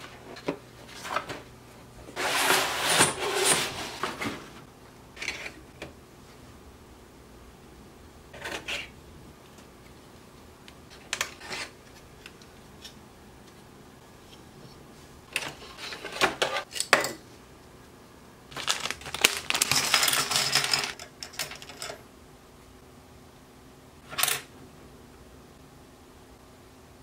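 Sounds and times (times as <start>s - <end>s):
plastic bag crinkling: 18.5s - 21.0s
plastic pieces clicking and clattering: 18.5s - 22.0s.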